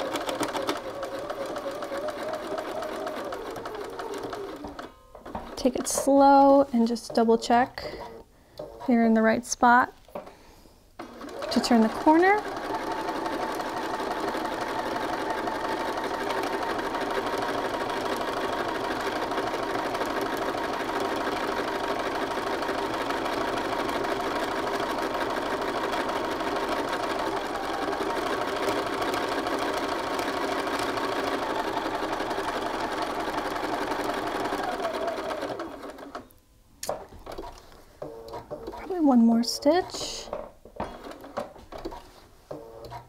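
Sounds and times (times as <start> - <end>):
sewing machine running: 0.0 - 8.9, 11.0 - 36.3.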